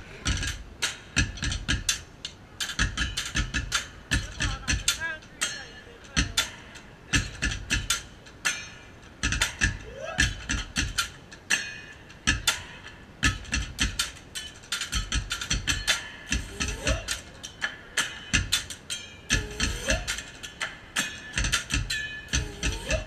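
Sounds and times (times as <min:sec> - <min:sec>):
drumstick cracks: 0:00.2 - 0:23.0
drumming on plastic barrel: 0:02.7 - 0:05.1, 0:06.2 - 0:08.2, 0:09.2 - 0:11.2, 0:12.3 - 0:14.2, 0:14.9 - 0:17.3.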